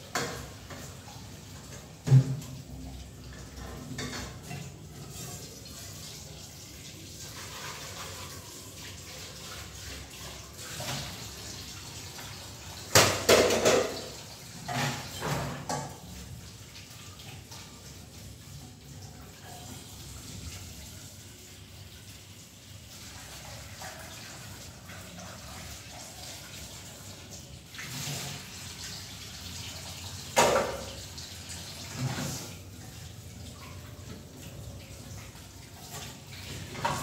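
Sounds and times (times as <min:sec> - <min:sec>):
dishes clattering in sink: 0:00.0 - 0:05.4, 0:12.8 - 0:16.2, 0:30.2 - 0:32.7, 0:35.8 - 0:37.0
running water: 0:00.0 - 0:37.0.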